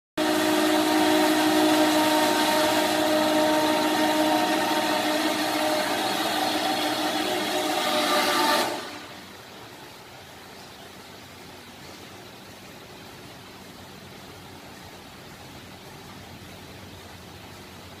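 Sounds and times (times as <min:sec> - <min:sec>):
crane motor whining: 0:00.2 - 0:09.1.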